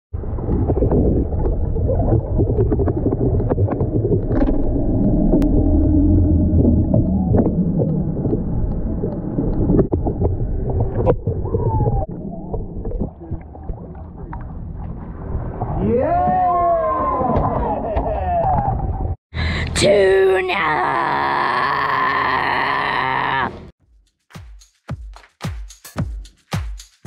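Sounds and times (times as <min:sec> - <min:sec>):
underwater low rumble: 0:00.1 - 0:19.2.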